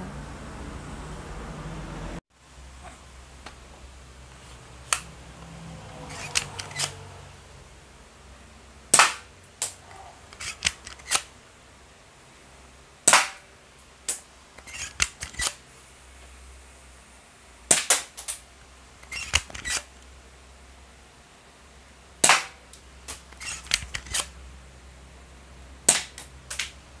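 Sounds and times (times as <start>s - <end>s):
toy pellet pistol cracks: 8.9s - 11.3s, 13.1s - 13.5s, 17.7s - 18.4s, 22.2s - 24.3s, 25.9s - 26.7s.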